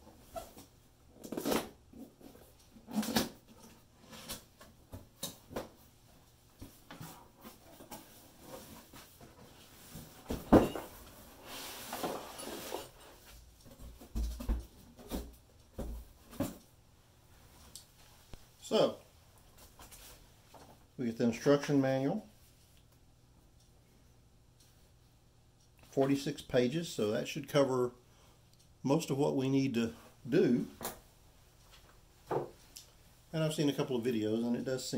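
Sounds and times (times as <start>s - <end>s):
packing rustling and scraping: 7.0s - 13.2s.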